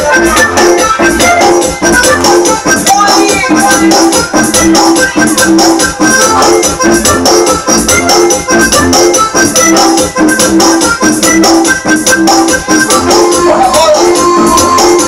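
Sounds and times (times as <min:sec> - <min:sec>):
electronic keyboard dance music: 0:00.0 - 0:15.0.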